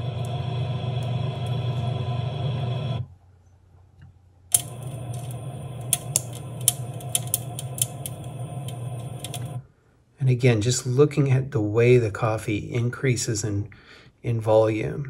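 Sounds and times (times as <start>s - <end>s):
air fryer fan humming: 0.0s - 3.1s, 4.5s - 9.6s
coffee beans popping: 4.5s - 9.6s.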